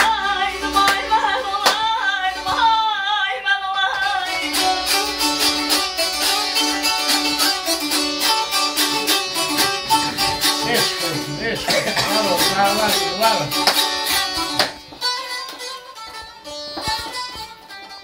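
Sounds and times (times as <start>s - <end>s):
lute strummed over drone: 4.2s - 18.0s.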